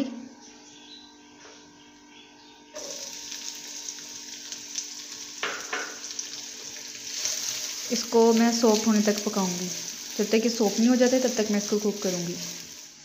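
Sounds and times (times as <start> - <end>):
onions sizzling in hot fat: 2.8 - 13.0.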